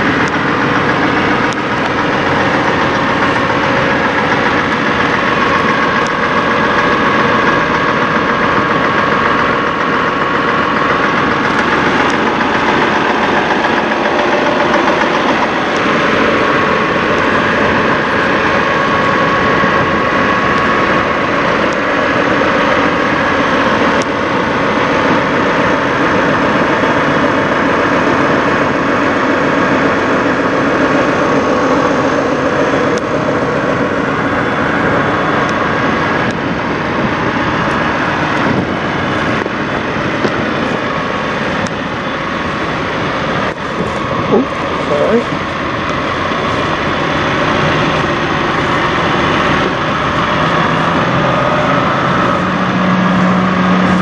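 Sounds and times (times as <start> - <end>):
diesel truck engine idling: 0.0 - 54.0.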